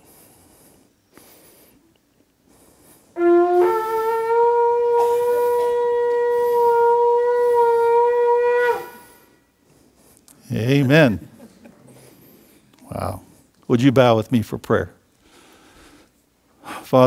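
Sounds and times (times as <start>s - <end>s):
ram's horn blown: 3.1s - 9.6s.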